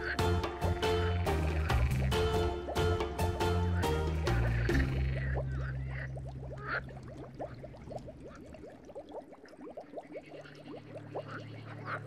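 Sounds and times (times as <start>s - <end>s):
water bubbling: 0.0s - 12.0s
low steady hum: 4.7s - 9.5s.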